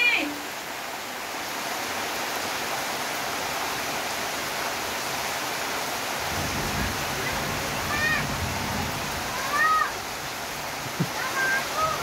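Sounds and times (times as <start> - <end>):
rain falling on foliage: 0.0 - 12.0.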